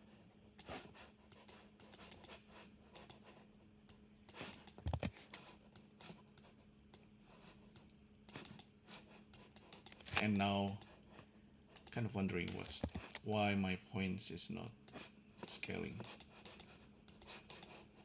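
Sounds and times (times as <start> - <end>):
mouse and keyboard clicks: 0.6 - 3.2, 3.8 - 7.1, 7.7 - 8.7, 9.3 - 11.0, 11.7 - 13.4, 16.0 - 17.9.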